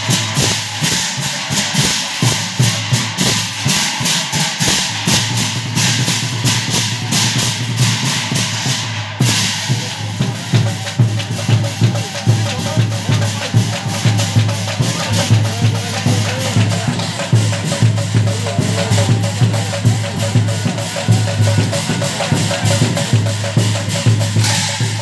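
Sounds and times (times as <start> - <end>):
cymbals clashing: 0.0 - 25.0
drums beating steady rhythm: 0.0 - 25.0
voices singing: 9.8 - 25.0.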